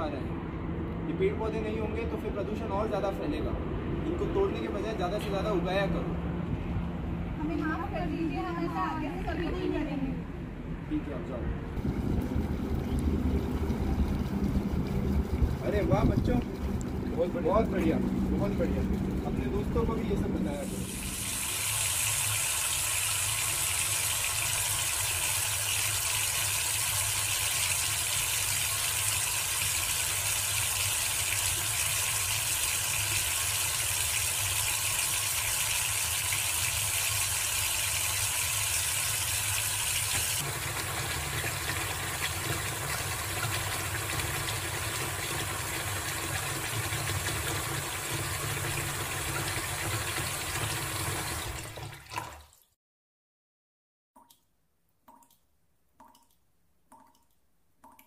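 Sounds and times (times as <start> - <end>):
tap water running into basin: 11.8 - 52.7.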